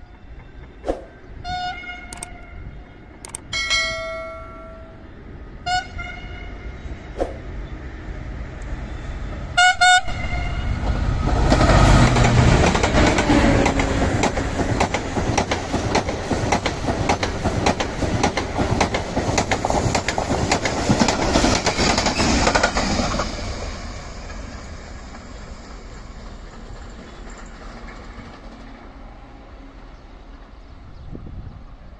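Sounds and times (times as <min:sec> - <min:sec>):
locomotive horn blasts: 0:01.4 - 0:02.8, 0:05.6 - 0:06.7, 0:09.6 - 0:10.8
train rushing past: 0:02.7 - 0:31.9
train wheels clattering on rails: 0:10.8 - 0:23.4, 0:24.1 - 0:28.9.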